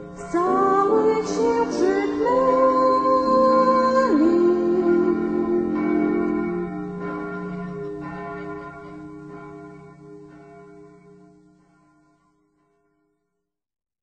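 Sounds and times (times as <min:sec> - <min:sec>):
held chord: 0:00.0 - 0:11.6
bell-like chimes ringing: 0:00.0 - 0:13.0
choir singing a carol: 0:00.2 - 0:07.0.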